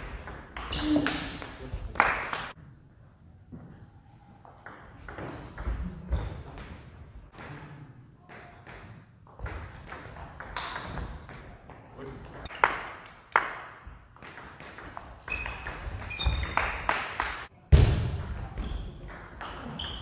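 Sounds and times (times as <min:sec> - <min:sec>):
shoe squeaks on floor: 0:15.3 - 0:16.6, 0:19.6 - 0:20.0.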